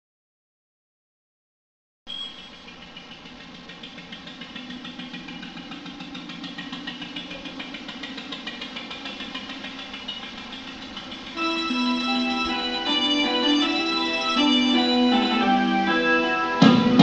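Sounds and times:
boat engine idling: 2.3 - 15.9.

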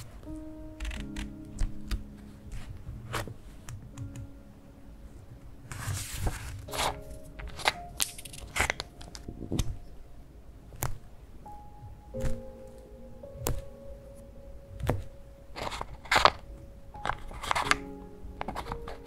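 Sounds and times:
soft background music: 0.0 - 19.0
paper page rustling: 5.7 - 9.9, 15.6 - 19.0.

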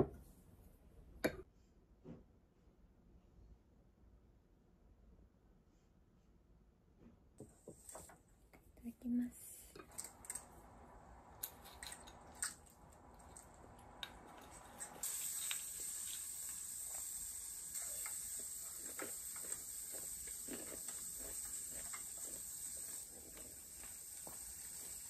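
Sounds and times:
steady high hiss: 9.1 - 25.0
quiet chewing: 17.7 - 25.0.

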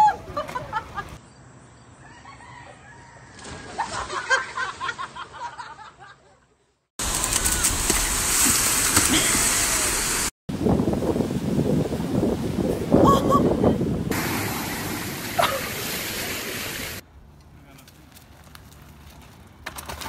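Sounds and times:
surf breaking on beach: 7.0 - 12.7, 14.1 - 17.0
wind buffeting microphone: 10.5 - 15.2
faint water noise: 14.1 - 17.0.

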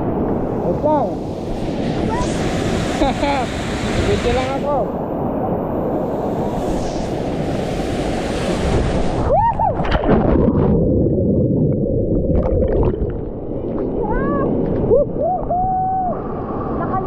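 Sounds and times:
waterfall rushing: 1.6 - 4.8.

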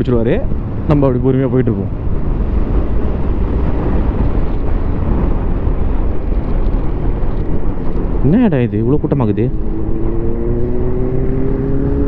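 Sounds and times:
wind rushing: 0.0 - 12.0
motorcycle engine: 9.4 - 12.0.

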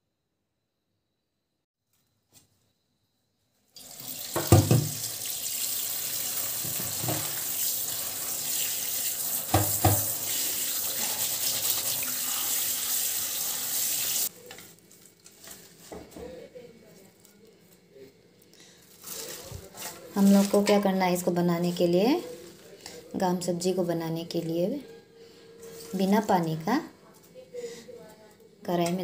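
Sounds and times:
tap water running into sink: 3.8 - 14.3.

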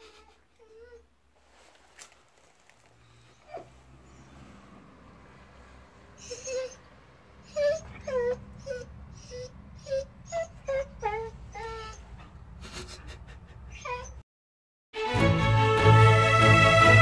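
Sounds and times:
dog whining and moaning: 0.0 - 1.2, 3.2 - 4.5, 6.2 - 14.2.

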